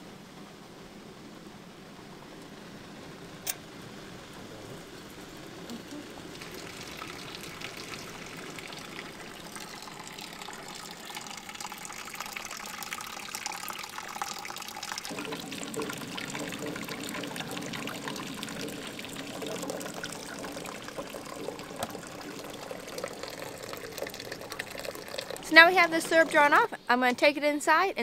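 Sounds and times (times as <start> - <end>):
sap boiling hard: 0.9 - 27.2
syrup pouring: 5.7 - 26.6.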